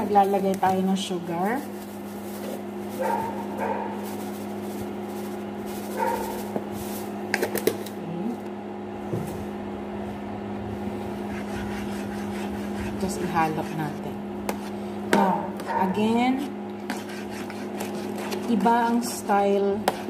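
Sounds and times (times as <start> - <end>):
induction cooker hum: 0.0 - 20.0.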